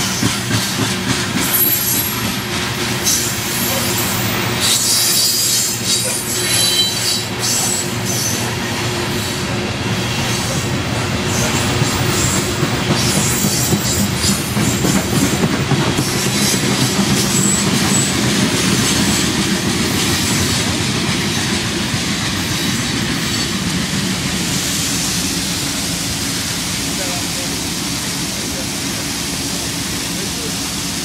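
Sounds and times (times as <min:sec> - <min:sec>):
freight train rumbling on track: 0:00.0 - 0:31.0
high wheel squeals: 0:03.0 - 0:10.6.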